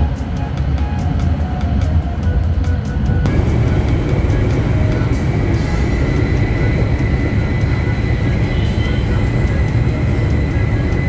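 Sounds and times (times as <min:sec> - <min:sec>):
train rumbling: 0:00.0 - 0:11.0
faint high whine: 0:03.2 - 0:11.0.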